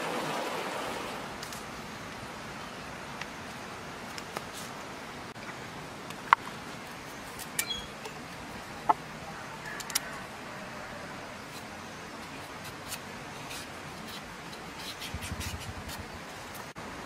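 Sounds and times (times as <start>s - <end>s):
steady hiss: 0.0s - 17.0s
knife scraping carrot: 11.4s - 16.2s.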